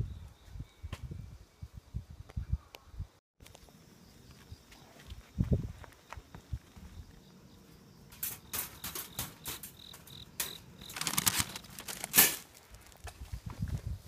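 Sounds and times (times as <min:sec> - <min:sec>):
wire cage trap rattling: 0:08.1 - 0:12.4
paper rustling: 0:10.8 - 0:13.0.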